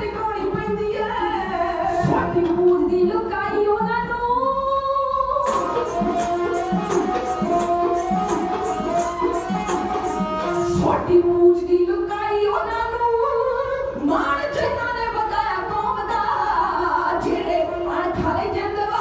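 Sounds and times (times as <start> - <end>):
women singing: 0.0 - 19.0
bowed strings and drums: 5.4 - 11.2.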